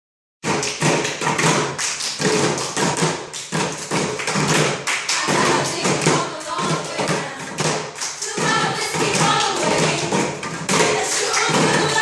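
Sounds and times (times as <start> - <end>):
hands drumming on wooden seats: 0.4 - 12.0.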